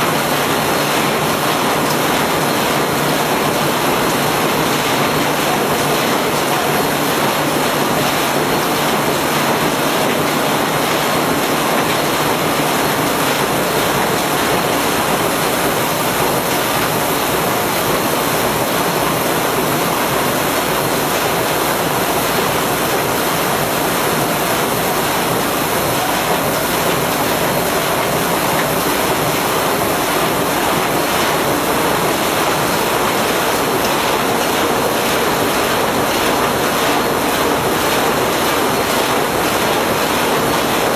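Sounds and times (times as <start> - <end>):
box folding machine running: 0.0 - 40.9.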